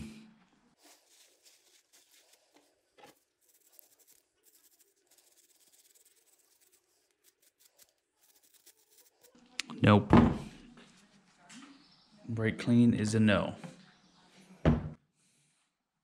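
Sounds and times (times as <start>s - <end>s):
wire brush scratching metal: 3.4s - 9.4s.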